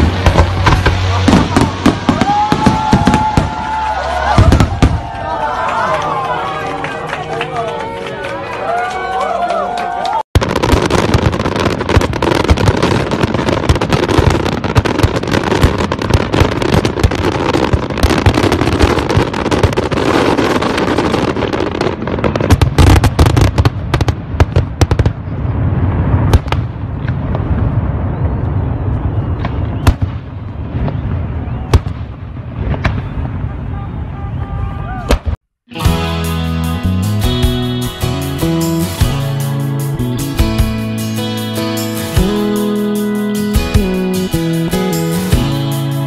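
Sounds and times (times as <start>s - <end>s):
fireworks booms: 0.0s - 5.2s, 10.4s - 34.2s
sharp fireworks bangs: 0.0s - 5.2s, 10.4s - 35.4s
fireworks crackling: 0.0s - 5.6s, 10.4s - 33.6s.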